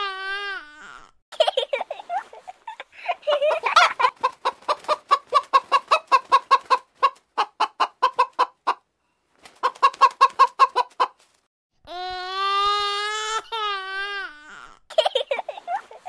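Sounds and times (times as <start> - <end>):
hen clucking: 3.3 - 8.9, 9.6 - 11.2.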